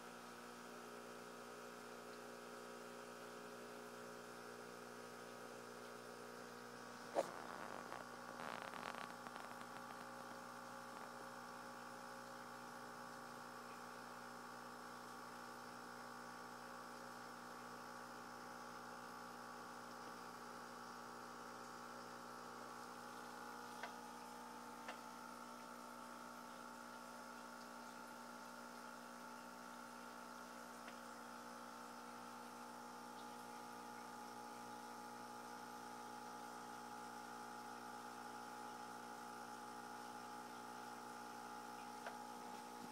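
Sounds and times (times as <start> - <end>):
aquarium equipment humming: 0.0 - 42.9
faint clicks: 8.4 - 10.2.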